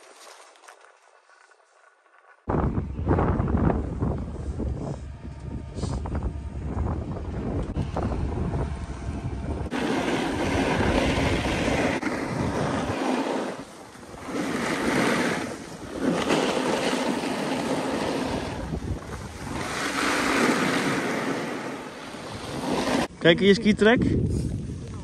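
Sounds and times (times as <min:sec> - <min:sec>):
skis scraping over snow: 0:00.0 - 0:02.5, 0:09.6 - 0:23.1
wind on microphone: 0:02.5 - 0:25.0.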